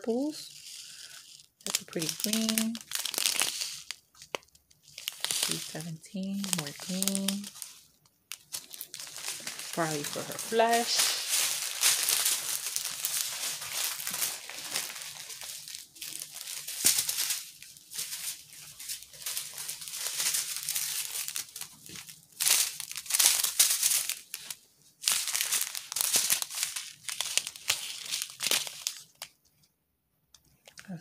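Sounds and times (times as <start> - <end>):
plastic bags crinkling: 0.0 - 29.4.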